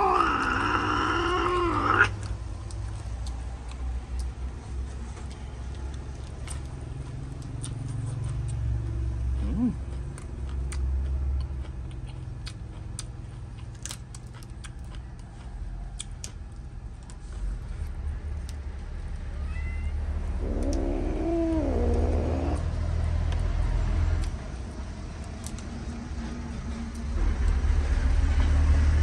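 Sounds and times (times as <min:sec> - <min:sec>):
cat meowing: 0:19.2 - 0:22.7.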